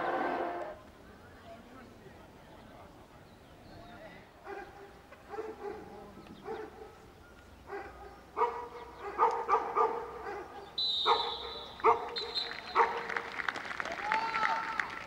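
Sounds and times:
dog barking: 4.4s - 7.0s, 7.7s - 13.1s
high steady whistle: 10.8s - 12.8s.

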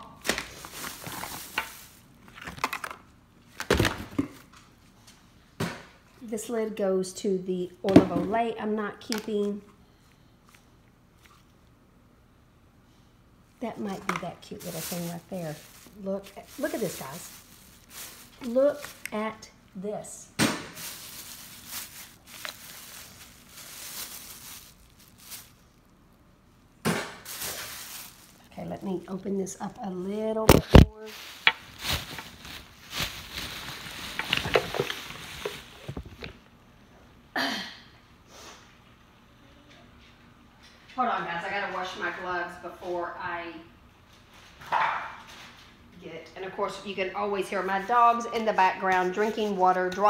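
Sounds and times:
plastic bags rustling: 0.0s - 4.4s, 13.6s - 25.9s, 26.9s - 36.4s
cosmetic packaging clattering: 0.2s - 3.0s, 13.8s - 19.2s, 20.4s - 25.6s, 26.9s - 29.2s, 30.5s - 36.3s.

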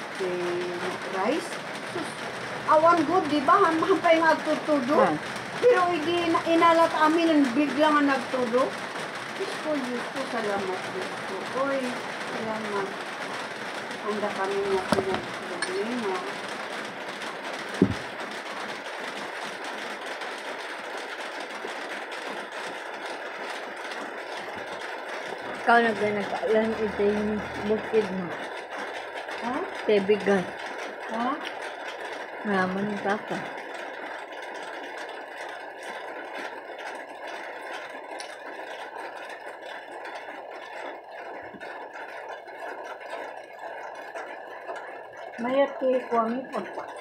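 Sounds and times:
mechanical hum and hiss: 0.0s - 37.3s
steady rushing noise: 17.8s - 18.2s.

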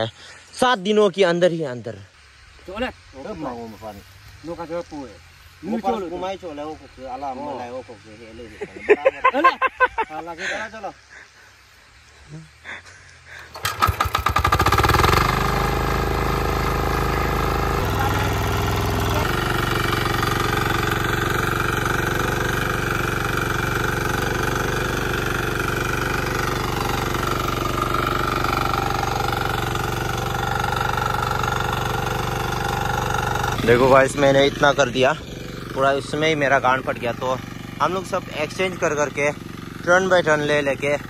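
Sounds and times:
single-cylinder tiller engine: 13.3s - 41.0s.

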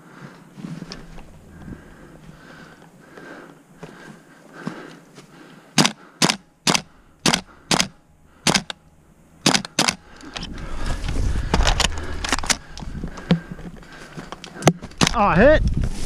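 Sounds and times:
low rumble: 0.0s - 4.0s, 6.5s - 14.4s
airsoft gun shots: 5.8s - 8.7s, 9.4s - 10.0s.

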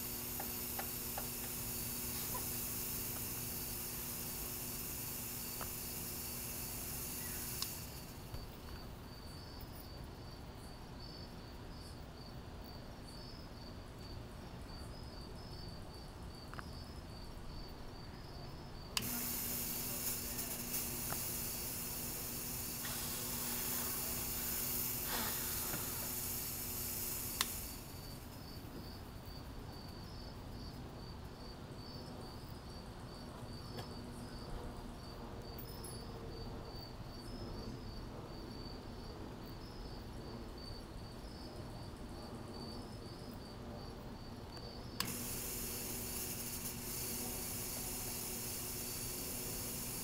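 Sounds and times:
smoke machine hissing: 0.0s - 8.9s, 18.7s - 28.7s, 44.9s - 50.0s
cricket chirping: 0.0s - 50.0s.

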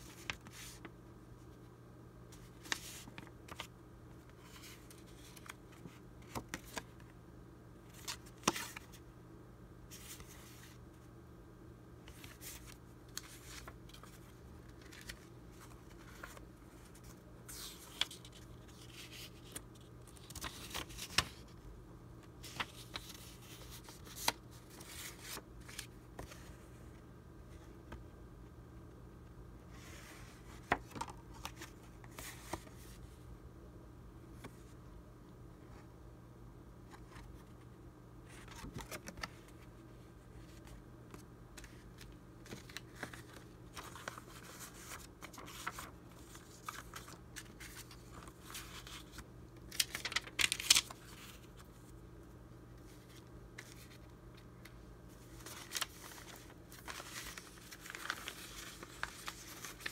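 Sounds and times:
paper rustling and crinkling: 0.0s - 0.9s, 2.3s - 7.1s, 12.1s - 21.6s, 22.4s - 26.6s, 29.8s - 33.0s, 38.3s - 39.7s, 40.3s - 52.0s, 52.8s - 59.9s
faint steady hum: 0.0s - 59.9s.

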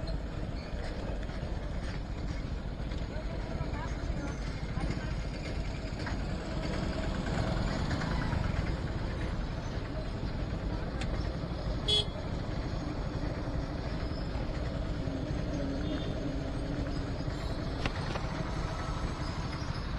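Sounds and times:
road traffic rumble: 0.0s - 19.9s
vehicle horn beep: 11.8s - 12.2s.

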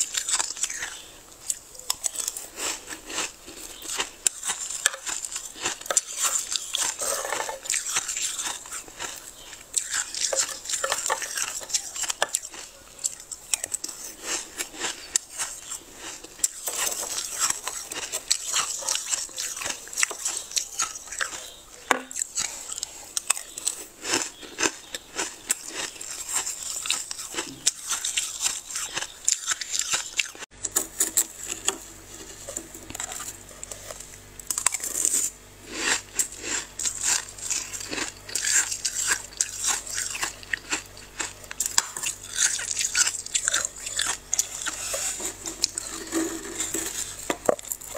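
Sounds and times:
ice frost scraping and crunching: 2.0s - 21.6s, 25.4s - 47.9s
steady low hum: 30.5s - 47.9s.

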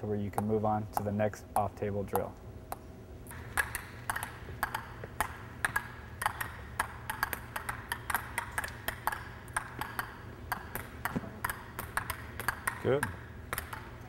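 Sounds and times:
table tennis ball bouncing on racket: 0.1s - 14.0s.

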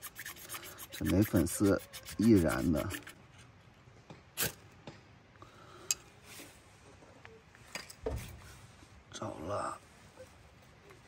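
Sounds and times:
knife scraping metal rod: 0.0s - 3.2s.

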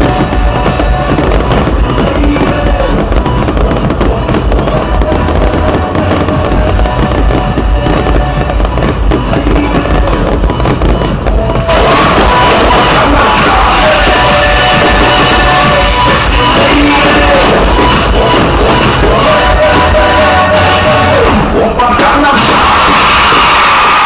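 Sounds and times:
fireworks bursting and crackling: 0.0s - 24.0s
music playing: 0.0s - 24.0s.

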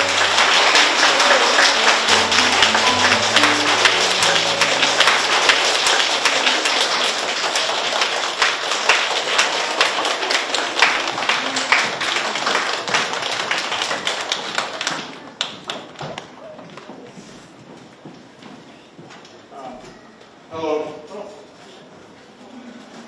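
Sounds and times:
audience applauding: 0.0s - 16.2s.

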